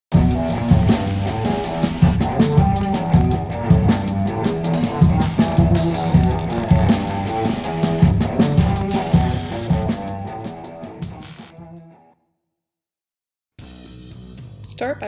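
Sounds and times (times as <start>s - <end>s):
rock music: 0.1s - 12.0s.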